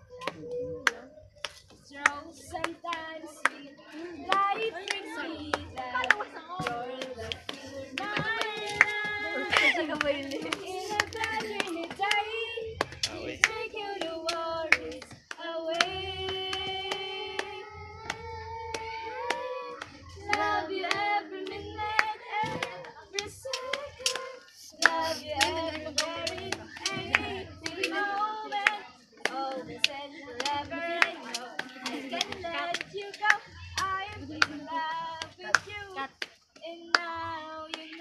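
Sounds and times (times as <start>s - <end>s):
girl singing: 1.9s - 38.0s
sharp hand claps: 4.2s - 34.6s.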